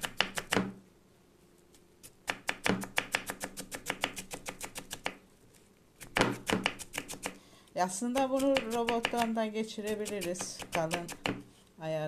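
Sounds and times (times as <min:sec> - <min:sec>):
knife chopping on wooden board: 0:00.0 - 0:00.7, 0:02.3 - 0:05.2, 0:06.0 - 0:07.4, 0:10.0 - 0:11.4.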